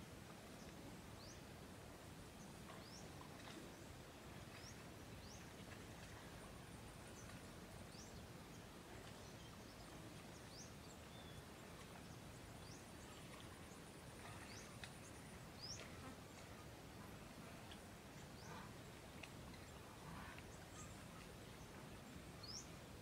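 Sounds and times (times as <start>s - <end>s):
low steady hiss: 0.0s - 23.0s
small birds chirping: 7.0s - 23.0s.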